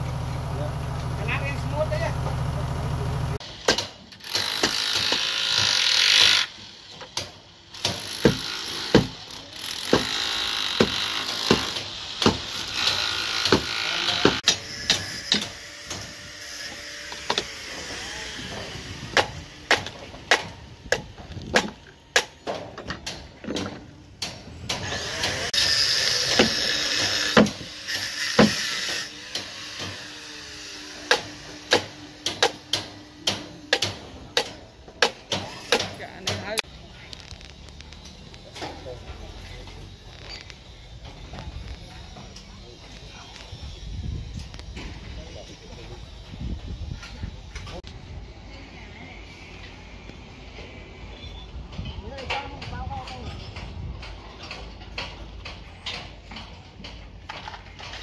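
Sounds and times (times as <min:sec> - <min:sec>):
construction site hiss: 0:00.0 - 0:22.9, 0:24.3 - 0:51.5
hammers knocking on formwork: 0:07.1 - 0:09.2, 0:09.8 - 0:16.1, 0:18.6 - 0:25.3, 0:26.3 - 0:30.0, 0:31.0 - 0:36.6.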